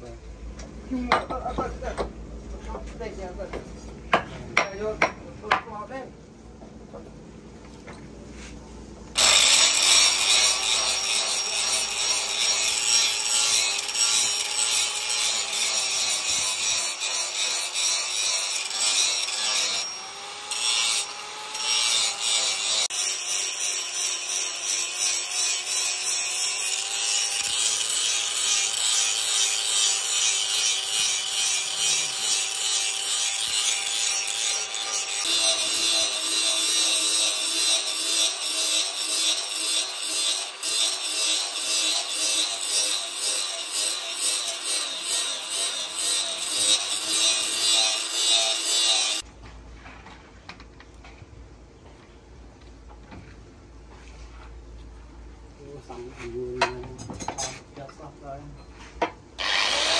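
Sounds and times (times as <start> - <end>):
angle grinder grinding steel: 9.2 - 49.2, 59.4 - 59.9
grinder motor whine: 59.4 - 59.9.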